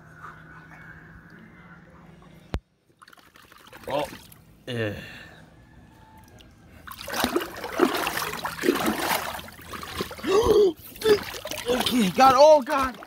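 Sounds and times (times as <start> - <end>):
water splashing in paddling pool: 6.8 - 13.0
short vocal cry: 10.2 - 11.9.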